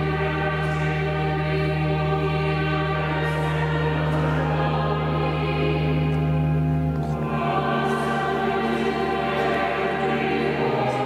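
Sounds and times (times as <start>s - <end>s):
choir singing held chords: 0.0s - 11.0s
steady low notes: 0.0s - 11.0s.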